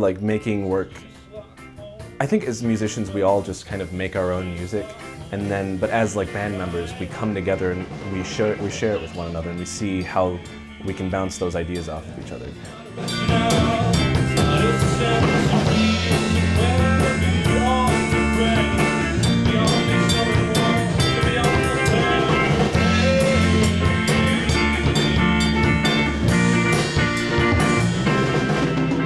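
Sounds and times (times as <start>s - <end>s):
man singing: 0.0s - 25.3s
electric bass: 0.0s - 29.0s
drum kit with cymbals: 0.4s - 29.0s.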